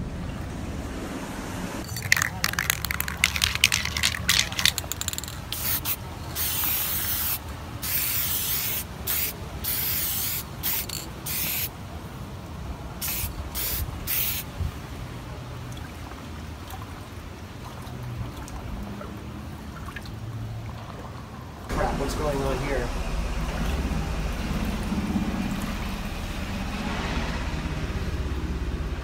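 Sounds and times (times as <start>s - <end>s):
spray paint can hissing: 1.8s - 11.7s, 13.0s - 14.5s.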